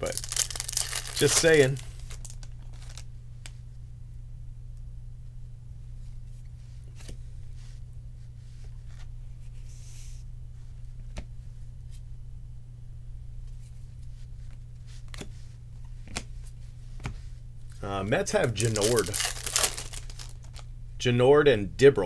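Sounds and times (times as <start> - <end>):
steady low hum: 0.0 - 22.0
cards sliding rustle: 0.2 - 3.0, 18.4 - 20.6.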